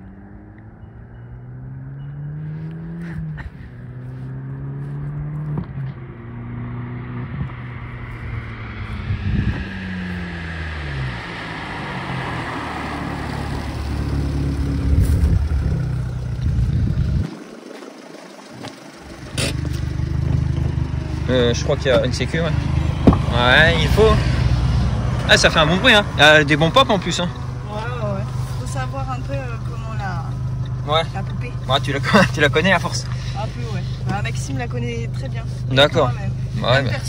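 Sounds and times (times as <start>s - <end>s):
car engine accelerating through gears: 0.0s - 17.3s, 18.6s - 37.0s
exhaust pops: 18.5s - 22.2s, 22.9s - 23.8s.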